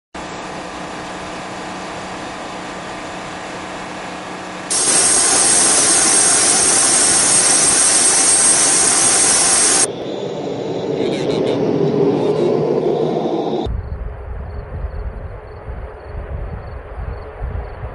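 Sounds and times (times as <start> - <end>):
jet engine running: 0.2 - 13.7
high steady whine: 0.2 - 17.4.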